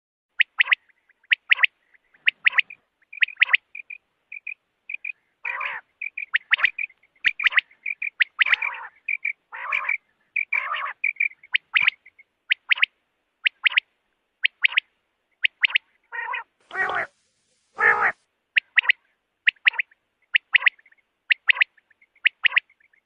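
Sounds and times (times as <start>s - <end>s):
quail calling: 0.4s - 17.1s, 17.8s - 23.0s
harsh raspy bird call: 0.6s - 12.1s, 15.4s - 17.1s, 17.8s - 21.7s.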